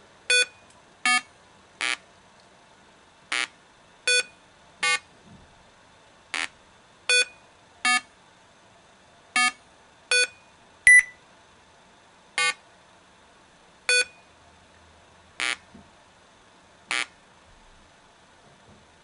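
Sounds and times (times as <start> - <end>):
short electronic beeps: 0.3 - 2.0, 4.1 - 5.0, 7.1 - 8.1, 9.4 - 11.2, 13.9 - 14.2.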